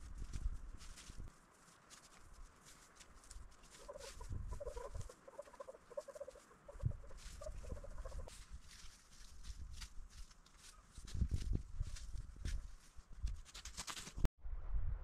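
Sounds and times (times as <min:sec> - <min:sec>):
dry leaves and twigs crackling: 0:00.0 - 0:14.2
bird calling rapidly: 0:03.6 - 0:08.3.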